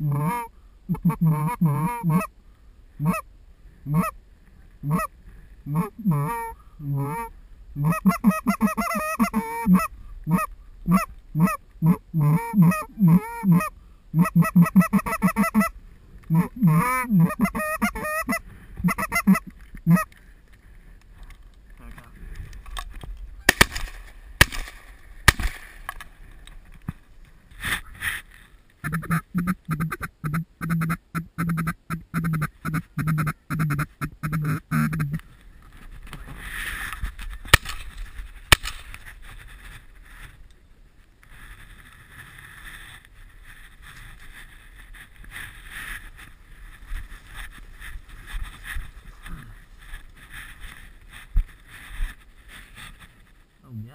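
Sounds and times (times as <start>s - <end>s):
ducks quacking: 0.0s - 2.3s, 3.0s - 3.2s, 3.9s - 4.2s, 4.8s - 5.1s, 5.7s - 15.7s, 16.3s - 20.1s, 28.8s - 35.2s
geese honking: 0.0s - 2.3s, 3.0s - 3.2s, 3.9s - 4.2s, 4.8s - 5.1s, 5.7s - 20.1s, 28.8s - 35.2s.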